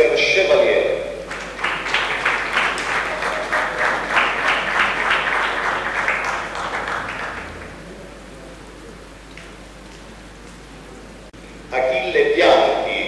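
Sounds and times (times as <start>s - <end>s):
people applauding: 1.2s - 8.5s.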